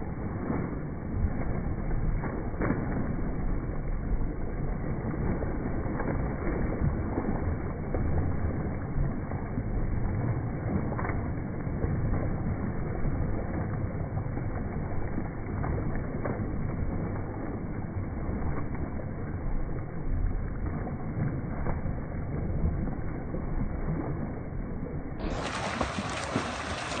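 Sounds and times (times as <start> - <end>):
steady low rumble: 0.0 - 27.0
swimmers splashing: 25.2 - 27.0.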